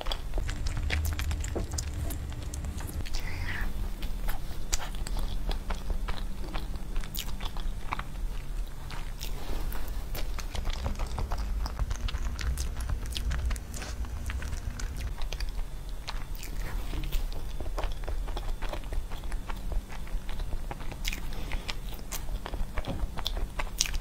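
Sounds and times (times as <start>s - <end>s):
chewing and biting cake: 0.0s - 24.0s.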